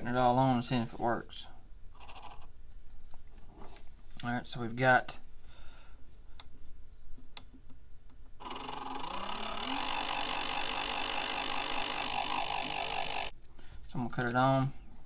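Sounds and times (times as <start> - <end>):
small electric motor whining: 8.4 - 13.3.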